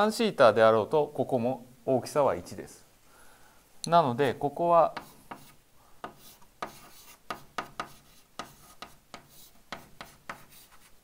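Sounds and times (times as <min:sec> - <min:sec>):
chalk tapping and scratching on blackboard: 0:04.8 - 0:11.0.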